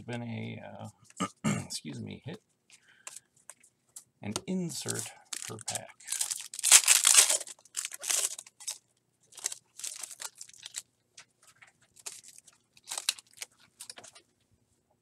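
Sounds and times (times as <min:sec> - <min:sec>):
foil wrapper tearing: 0:04.8 - 0:10.8, 0:12.0 - 0:14.1
wrapper crinkling: 0:04.8 - 0:14.2.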